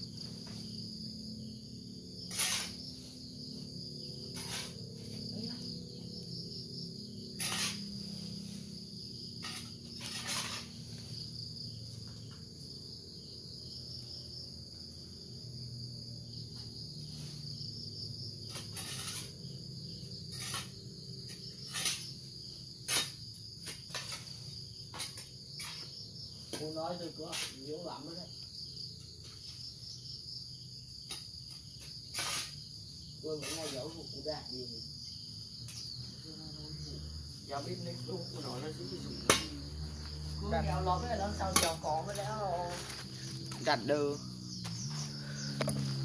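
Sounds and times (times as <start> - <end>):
insects chirping: 0.0 - 46.0
digging by hand in soil: 2.2 - 6.4, 7.0 - 12.4, 18.4 - 19.4, 20.0 - 27.6, 31.0 - 34.2, 37.6 - 46.0.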